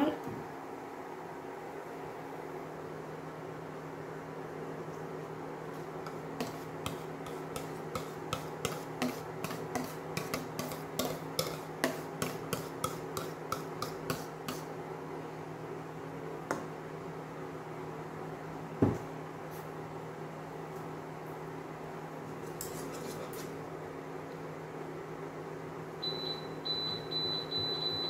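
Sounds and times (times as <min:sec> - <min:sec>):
cooling fan hum: 0:00.0 - 0:28.0
whisk tapping against a bowl: 0:06.1 - 0:14.7.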